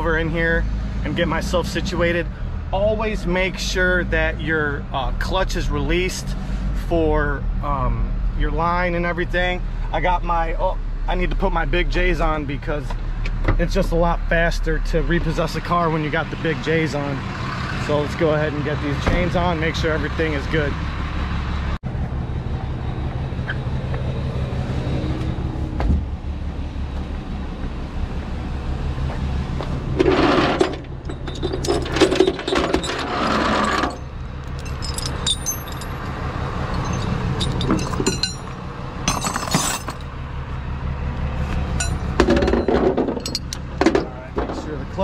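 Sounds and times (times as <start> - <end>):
truck engine idling: 8.6 - 45.0
chains clinking on metal deck: 30.1 - 40.1, 41.8 - 43.6.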